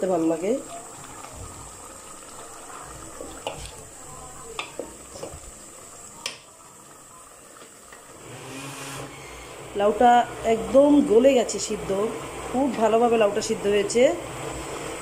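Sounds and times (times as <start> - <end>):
spoon stirring in metal pot: 0.7 - 5.6.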